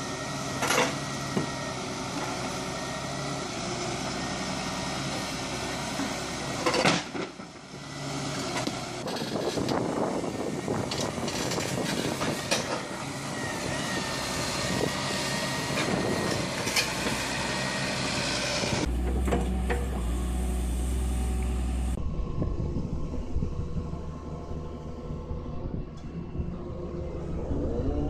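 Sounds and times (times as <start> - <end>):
excavator diesel engines: 0.0 - 28.0
deep engine drone: 8.3 - 28.0.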